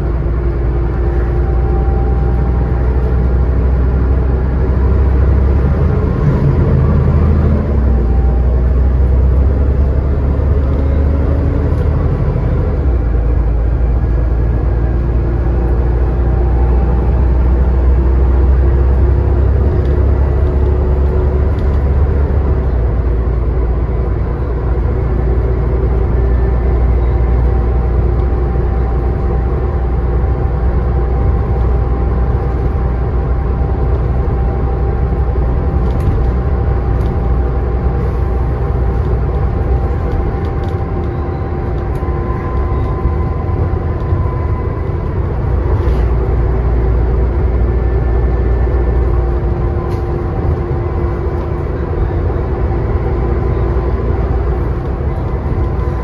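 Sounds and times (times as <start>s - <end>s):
bus engine rumble: 0.0s - 56.0s
faint whines: 33.7s - 56.0s.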